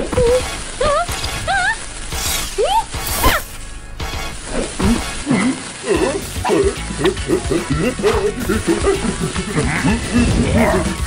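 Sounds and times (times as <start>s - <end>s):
cartoon background music: 0.0s - 11.0s.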